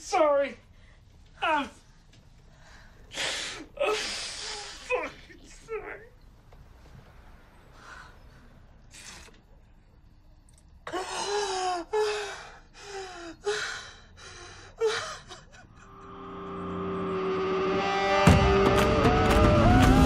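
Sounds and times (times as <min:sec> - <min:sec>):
tense score music: 0:13.9 - 0:20.0.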